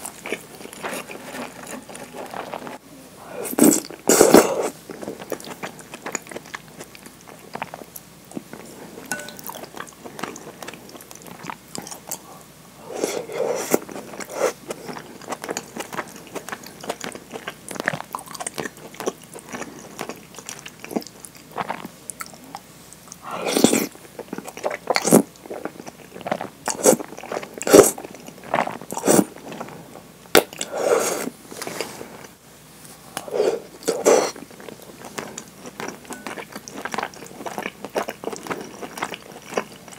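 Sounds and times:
chewing: 3.6s - 12.4s, 13.0s - 29.8s, 33.2s - 39.9s.

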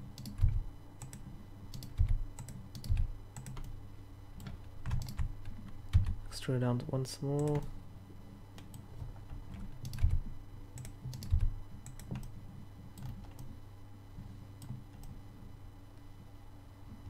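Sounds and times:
keyboard and mouse clicks: 0.2s - 3.8s, 4.4s - 6.2s, 9.5s - 10.2s, 10.8s - 12.4s, 13.0s - 13.5s.

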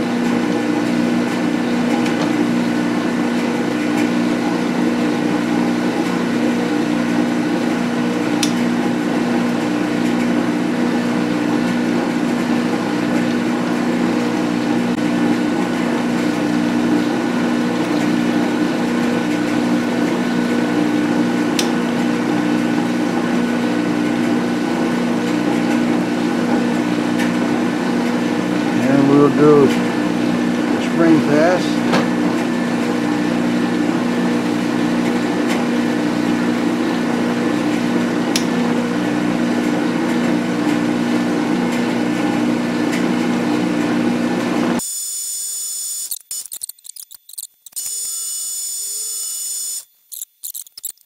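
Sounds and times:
sharp clicks: 46.1s - 47.9s, 50.1s - 51.0s.

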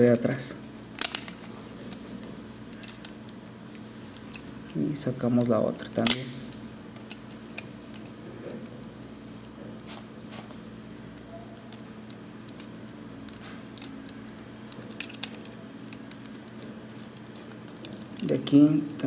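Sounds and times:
faint steady hum: 0.0s - 19.0s
plastic toy parts clicking: 11.6s - 18.5s.

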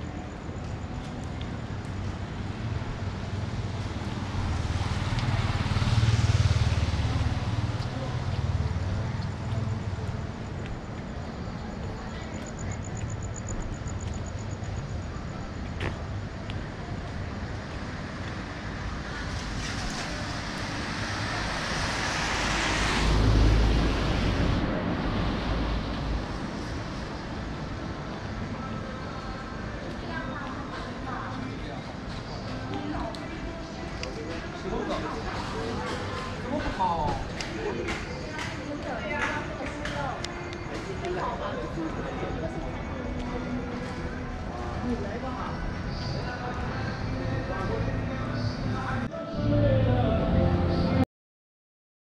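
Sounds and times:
rain: 0.4s - 10.8s, 16.5s - 31.0s
vehicle passing on wet road: 3.3s - 9.5s, 17.9s - 27.1s.

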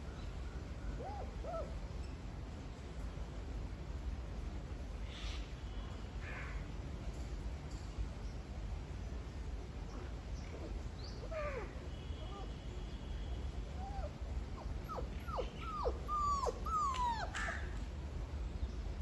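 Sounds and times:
puppy whimpering: 14.8s - 17.6s.

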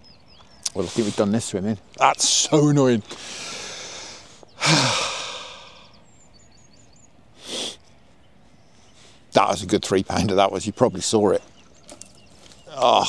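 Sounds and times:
man sighing heavily: 3.1s - 6.0s.

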